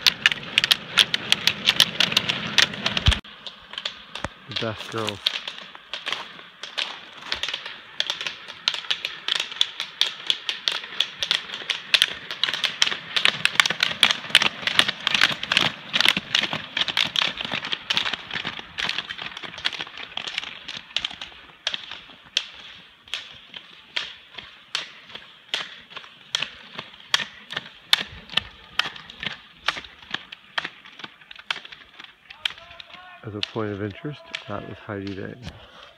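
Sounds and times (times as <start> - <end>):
ski poles clicking on asphalt: 0.0 - 35.9.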